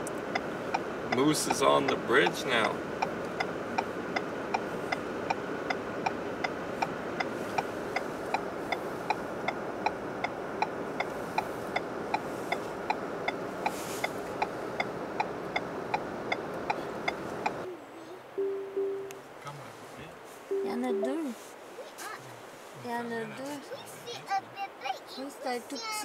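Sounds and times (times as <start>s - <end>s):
car indicator ticking: 0.0s - 17.6s
car hum: 0.0s - 25.6s.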